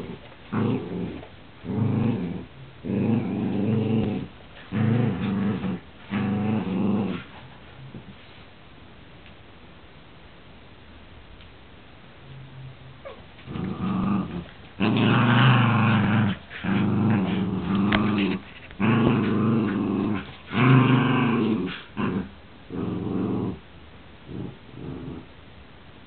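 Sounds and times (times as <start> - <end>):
dog growling: 0.0 - 8.1, 13.0 - 23.6, 24.3 - 25.3.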